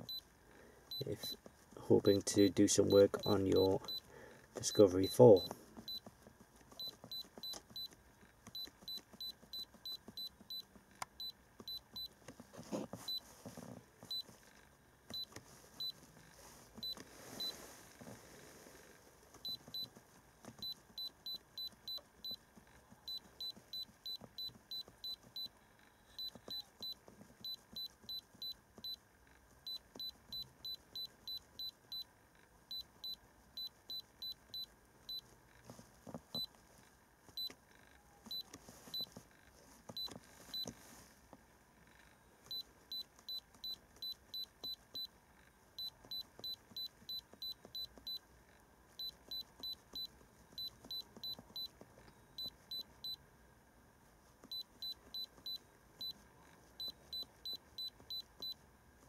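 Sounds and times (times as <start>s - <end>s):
short high-pitched beeps: 0.9s - 1.4s, 2.8s - 4.0s, 26.1s - 29.0s, 32.7s - 35.2s, 45.8s - 48.2s, 49.0s - 51.7s, 52.4s - 53.2s, 54.5s - 56.2s, 56.8s - 58.6s
soft handling rustles: 1.2s - 31.7s, 33.2s - 48.2s.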